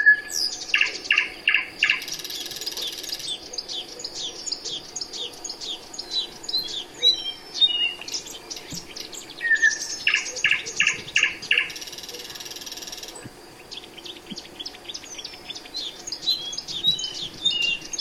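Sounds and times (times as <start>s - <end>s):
songbirds chirping and whistling: 0.0s - 18.0s.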